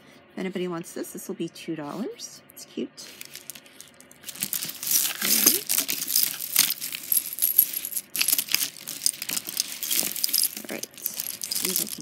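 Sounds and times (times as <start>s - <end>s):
beads clicking and jangling: 3.1s - 12.0s.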